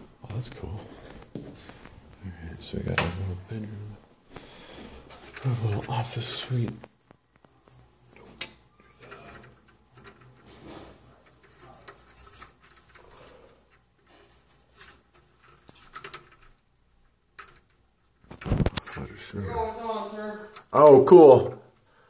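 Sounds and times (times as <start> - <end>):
window blinds clicking and rattling: 8.9 - 16.6.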